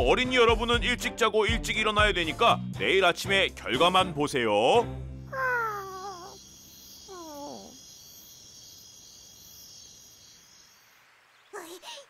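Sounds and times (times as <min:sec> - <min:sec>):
cartoon puppy whine: 0:05.3 - 0:06.4, 0:07.1 - 0:07.8
crickets chirping: 0:05.3 - 0:12.0.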